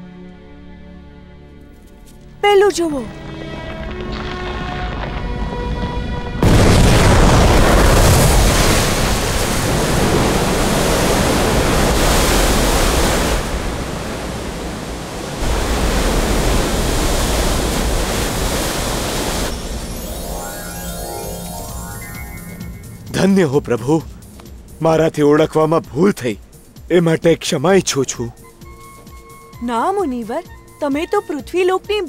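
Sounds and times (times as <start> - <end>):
background music: 0.0 - 6.9, 19.7 - 32.0
loud rushing river water: 7.3 - 23.1.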